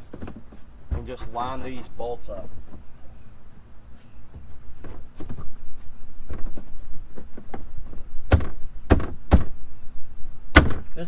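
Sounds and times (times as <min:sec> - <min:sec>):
loud thumps: 0:06.2 - 0:09.6, 0:10.5 - 0:11.0.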